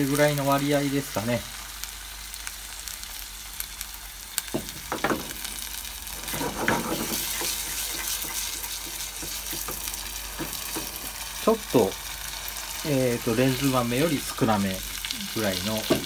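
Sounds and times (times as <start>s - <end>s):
stew sizzling in oil: 0.0s - 16.0s
wooden spatula stirring and scraping: 6.1s - 11.2s.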